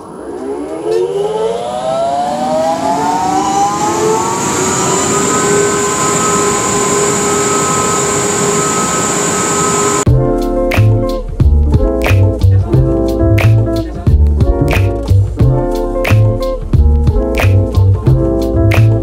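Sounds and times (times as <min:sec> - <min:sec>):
blower whine and hum: 0:00.0 - 0:10.1.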